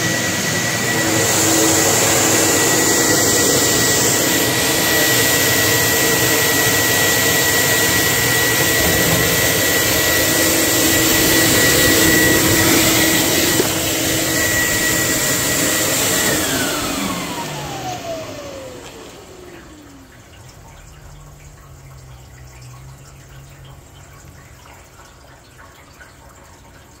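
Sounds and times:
motor spinning down: 0:00.0 - 0:20.1
washing machine whine and rush: 0:00.0 - 0:21.0.

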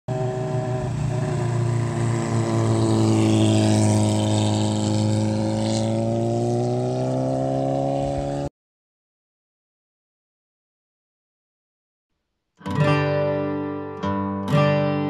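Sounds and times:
motorcycle engines droning: 0:00.1 - 0:08.5.

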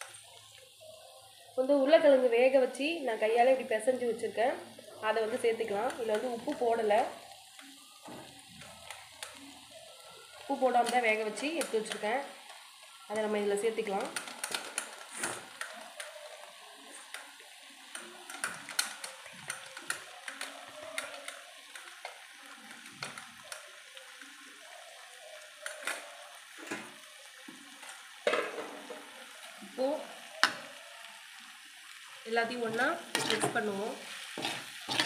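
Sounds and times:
faint oil sizzle: 0:00.0 - 0:35.0
metal ladle scraping metal pan: 0:34.4 - 0:35.0.

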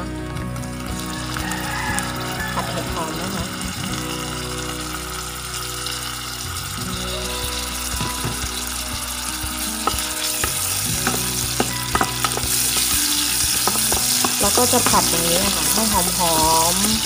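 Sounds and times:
mushrooms sizzling in hot oil: 0:00.8 - 0:17.0.

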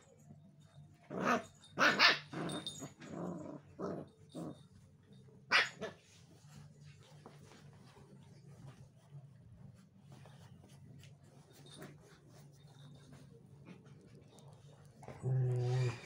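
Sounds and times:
puppies growling: 0:01.1 - 0:04.9, 0:14.1 - 0:16.0.

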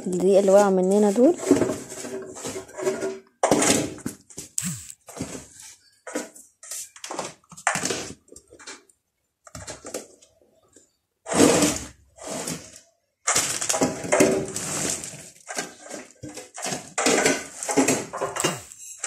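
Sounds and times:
plastic rustling and knocking: 0:00.0 - 0:08.9, 0:09.5 - 0:19.0.

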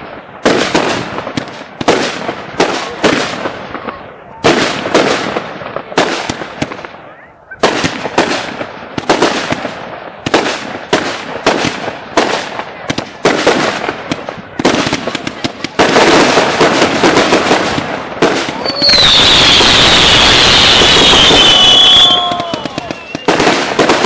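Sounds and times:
fireworks bangs and crackle: 0:00.0 - 0:24.0
whistle sliding down in pitch: 0:18.6 - 0:23.3.

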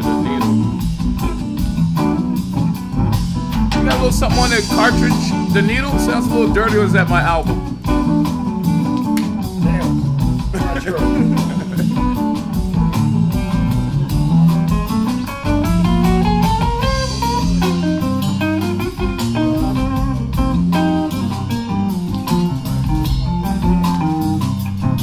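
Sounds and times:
blues guitar music: 0:00.0 - 0:25.0
person remarking: 0:09.6 - 0:12.3.

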